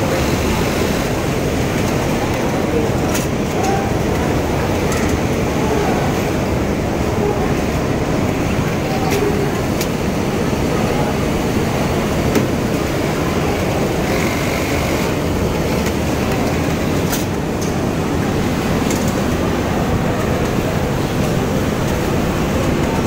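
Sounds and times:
industrial sewing machines running: 0:00.0 - 0:23.0.

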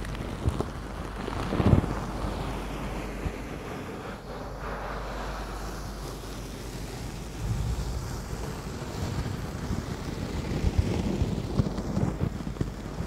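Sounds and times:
low rubbing thumps: 0:07.3 - 0:09.6.

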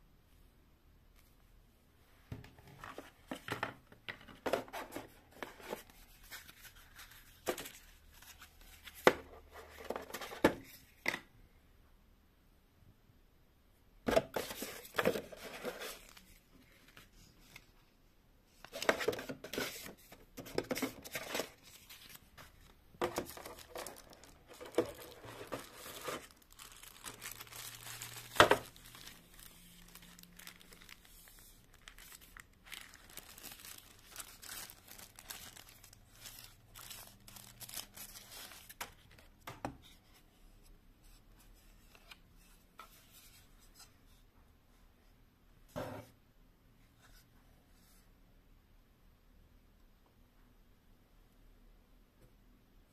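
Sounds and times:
plastic wrapping crinkling: 0:20.8 - 0:39.2.

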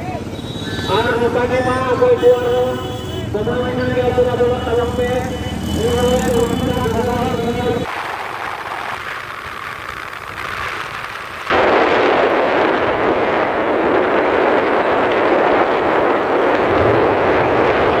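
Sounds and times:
wind rushing on microphone: 0:07.5 - 0:18.0.

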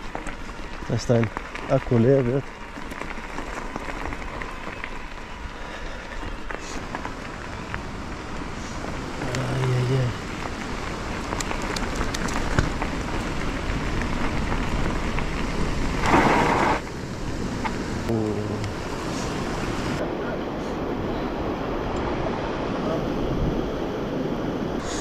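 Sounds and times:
scattered ticks: 0:00.0 - 0:16.2
bicycle tyres rolling: 0:00.0 - 0:25.0
wind on microphone: 0:17.5 - 0:25.0.

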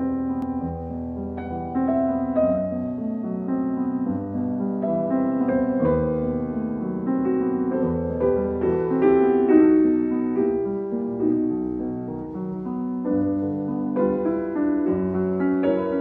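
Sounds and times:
calm piano music: 0:00.0 - 0:16.0.

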